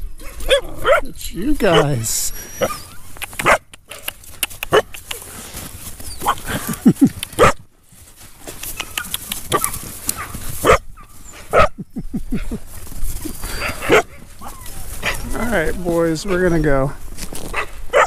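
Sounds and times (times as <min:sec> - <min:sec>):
dogs barking sharply: 0:00.2 - 0:05.2, 0:06.2 - 0:06.6, 0:07.3 - 0:07.6, 0:08.6 - 0:11.8, 0:13.5 - 0:15.3, 0:17.5 - 0:18.0.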